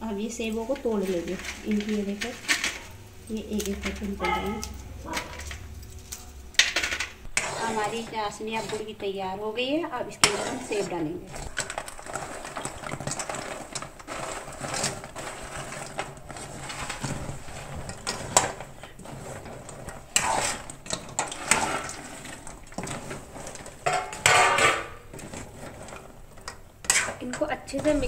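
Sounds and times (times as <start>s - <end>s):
spatula scraping metal pan: 6.6s - 9.2s, 10.0s - 28.0s.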